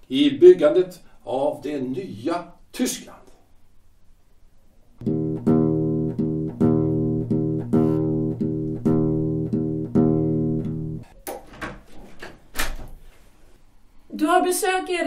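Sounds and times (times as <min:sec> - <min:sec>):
plucked low string instrument: 0:05.0 - 0:11.1.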